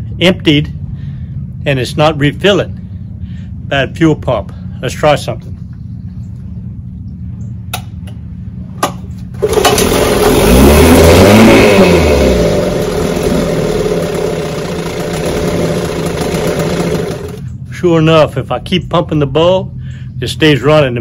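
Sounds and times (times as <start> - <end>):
outboard motor running: 9.2 - 17.6.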